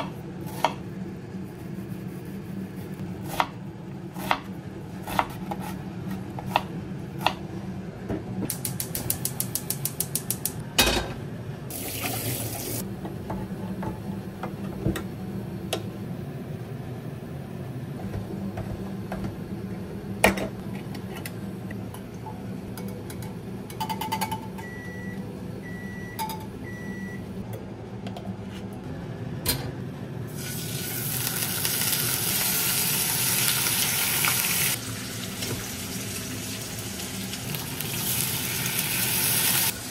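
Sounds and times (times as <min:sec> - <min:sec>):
knife chopping onion on board: 0:00.0 - 0:00.8, 0:04.2 - 0:07.4
bacon sizzling in frying pan: 0:30.3 - 0:39.9.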